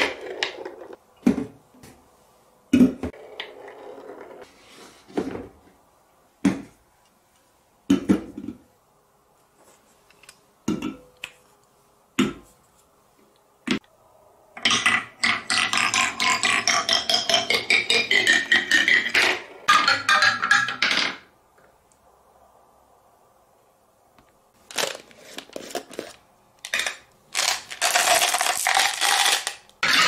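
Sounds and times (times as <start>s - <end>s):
wooden track pieces knocking: 14.6s - 21.3s.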